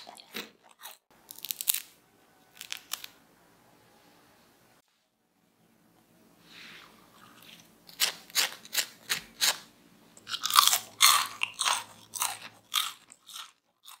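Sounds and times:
crunching fries: 0.0 - 3.2, 7.4 - 14.0.

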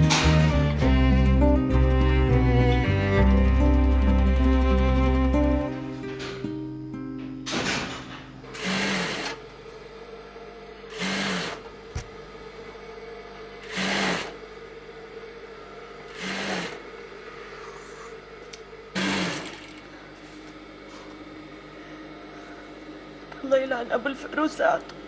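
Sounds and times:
sewing machine hum: 0.0 - 6.2, 8.4 - 9.5, 10.8 - 12.0, 13.5 - 20.1
sewing machine stitching: 8.5 - 9.4, 10.9 - 11.6, 13.6 - 14.4, 16.1 - 16.9, 19.0 - 19.8.

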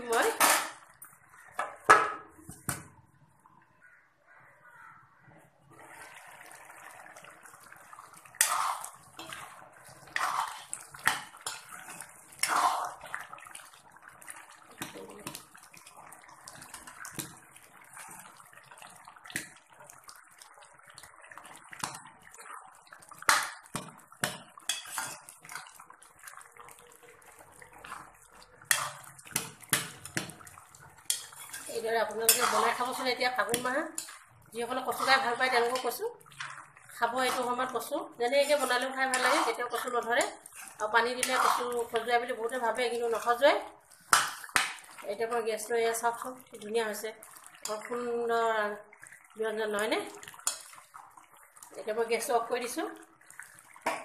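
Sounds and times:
metal spoon scraping a pan: 0.0 - 0.8, 8.3 - 13.1, 24.2 - 25.8, 27.8 - 45.4, 50.3 - 50.7
thick curry simmering and bubbling: 0.0 - 54.0.

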